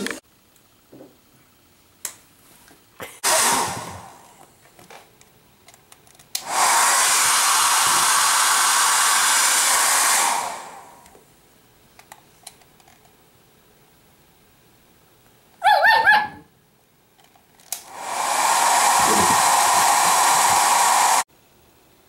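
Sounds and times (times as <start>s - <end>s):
loud rushing hiss: 3.2s - 4.4s, 6.4s - 11.0s, 17.8s - 21.3s
small clicks and taps: 12.0s - 13.2s.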